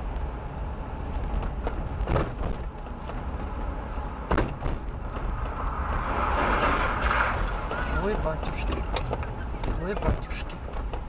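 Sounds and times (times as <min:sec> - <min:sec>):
car engine and tyre rumble: 0:00.0 - 0:11.0
sharp knocks: 0:01.4 - 0:02.7, 0:04.3 - 0:11.0.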